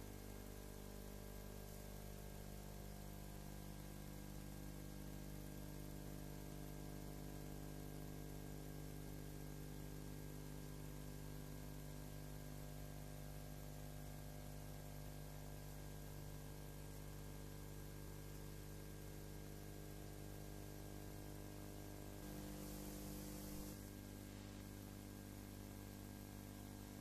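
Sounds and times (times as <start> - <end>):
low electrical hum: 0.0 - 27.0
faint hiss: 22.1 - 24.9.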